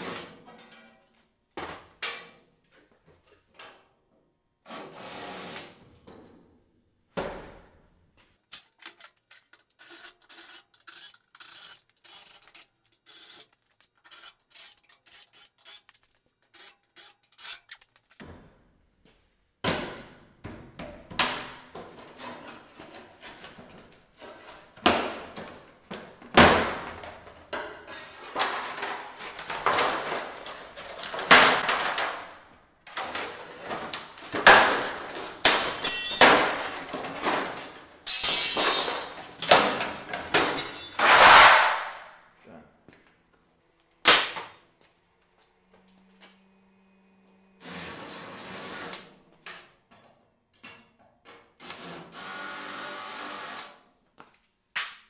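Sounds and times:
metal knocks and clangs: 35.3s - 41.8s.

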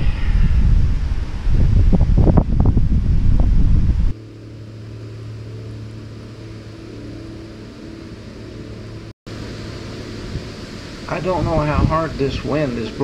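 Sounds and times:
wind buffeting microphone: 0.0s - 4.2s, 10.2s - 13.0s
steady low hum: 0.0s - 13.0s.

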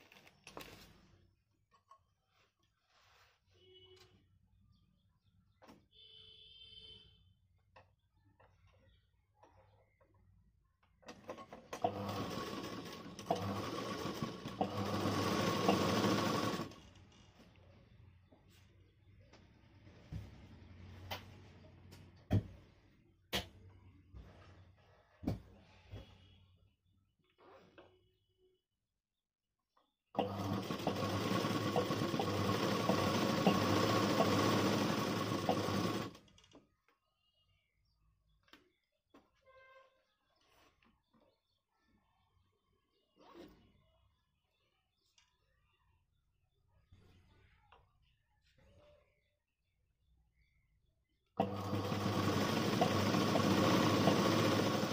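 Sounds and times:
sewing machine stitching: 11.1s - 17.1s, 30.2s - 36.6s, 51.4s - 54.9s.

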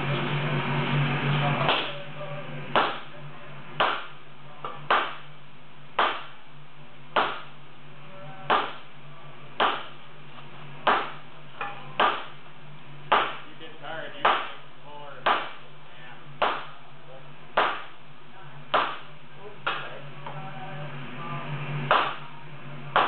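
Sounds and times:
steady low hum: 0.0s - 23.0s
sledgehammers striking iron: 1.6s - 2.0s, 2.7s - 3.1s, 3.8s - 5.3s, 5.9s - 6.4s, 7.2s - 7.6s, 8.5s - 8.9s, 9.6s - 10.0s, 10.8s - 12.4s, 13.0s - 13.5s, 14.2s - 15.7s, 16.4s - 16.8s, 17.5s - 18.0s, 18.7s - 19.9s, 21.8s - 22.3s.

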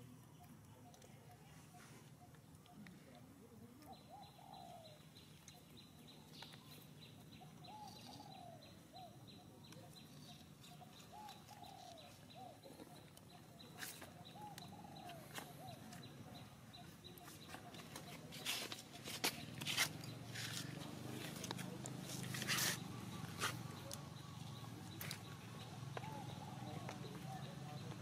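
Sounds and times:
dove cooing: 3.6s - 5.0s, 10.7s - 12.7s, 14.2s - 16.0s.

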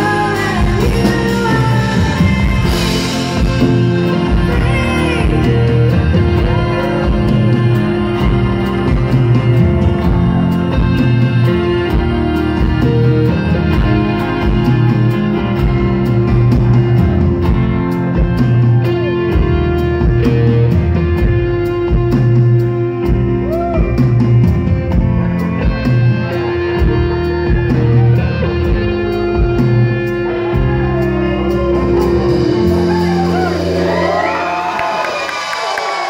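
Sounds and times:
live rock band playing: 0.0s - 36.0s
crowd cheering: 23.1s - 24.6s, 25.4s - 36.0s.

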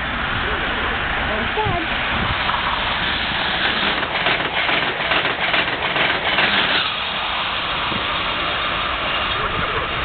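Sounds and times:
train passing at speed: 0.0s - 10.0s
train wheels clattering: 2.4s - 9.8s.

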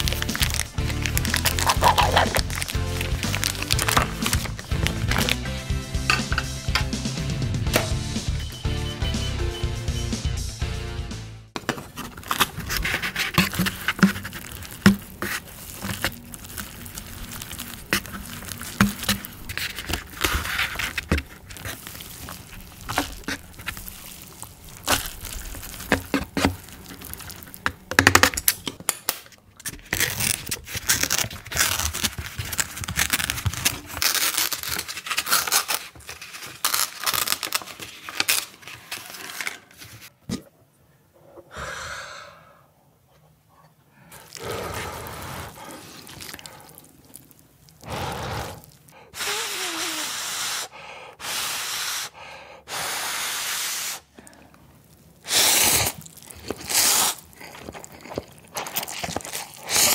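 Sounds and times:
foil lids peeled and crinkled: 0.0s - 5.5s, 11.6s - 40.2s, 55.3s - 59.9s
chopsticks scraping and stirring: 11.8s - 28.3s, 55.7s - 59.9s.

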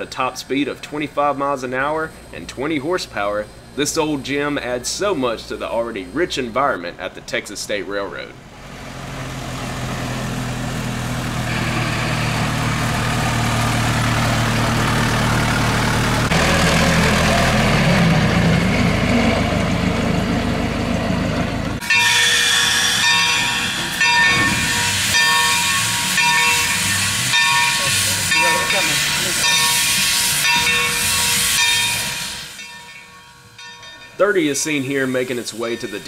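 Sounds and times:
steam locomotive hissing steam: 0.0s - 6.7s, 11.2s - 18.6s, 21.8s - 33.3s, 34.0s - 36.0s
truck engine driving past: 8.4s - 30.9s
steady high tones: 21.8s - 36.0s.

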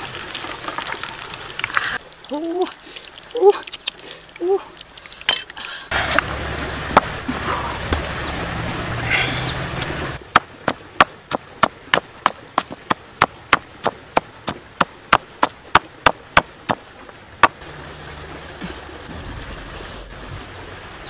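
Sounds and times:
pestle pounding in stone mortar: 10.3s - 16.8s.

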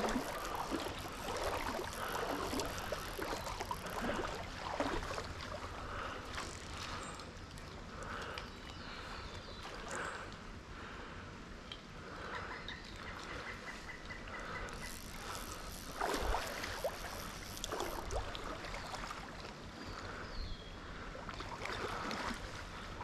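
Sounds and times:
water splashing around wading legs: 0.0s - 7.8s, 15.1s - 19.6s.

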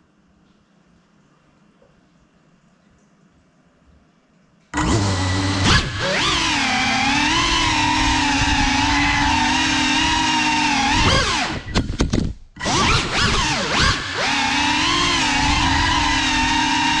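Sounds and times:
drone motors whining: 4.8s - 11.8s, 12.6s - 17.0s.

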